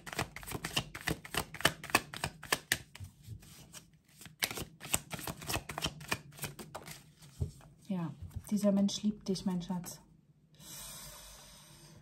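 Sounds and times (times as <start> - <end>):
cards being shuffled: 0.0 - 7.4.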